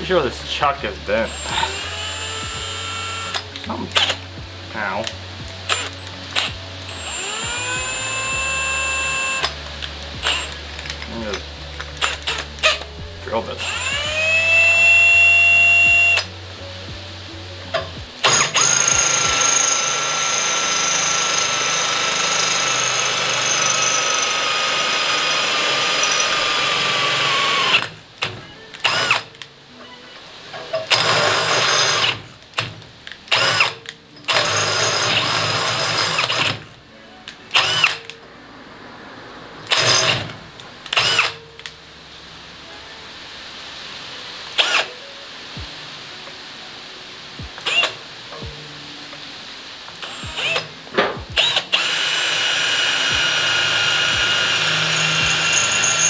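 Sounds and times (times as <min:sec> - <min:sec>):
cordless drill whining: 0:01.2 - 0:04.2, 0:05.7 - 0:11.1, 0:11.9 - 0:12.9, 0:13.6 - 0:16.3, 0:18.2 - 0:28.0, 0:28.8 - 0:29.4, 0:30.9 - 0:32.3, 0:33.3 - 0:36.7, 0:37.5 - 0:38.1, 0:40.9 - 0:41.4, 0:50.0 - 0:50.7, 0:51.4 - 0:56.0.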